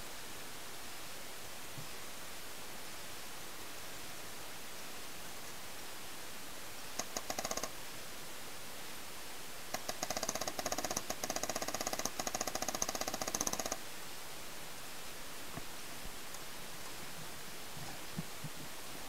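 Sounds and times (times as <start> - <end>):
paintball marker rapid firing: 9.7 - 13.8.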